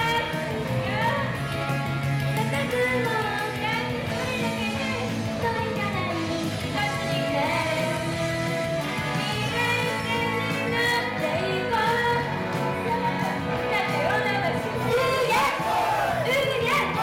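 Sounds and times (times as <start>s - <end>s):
upbeat instrumental backing: 0.0s - 17.0s
young women singing: 14.9s - 17.0s.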